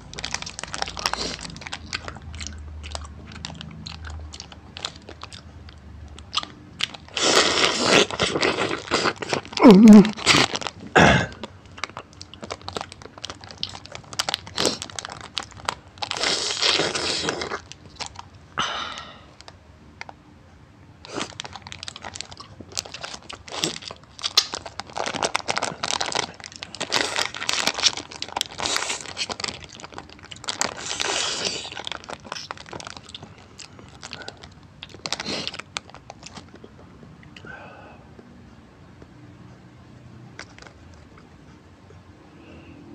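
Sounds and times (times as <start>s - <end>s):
candy wrapper crinkling: 0.0s - 18.4s, 21.0s - 36.7s.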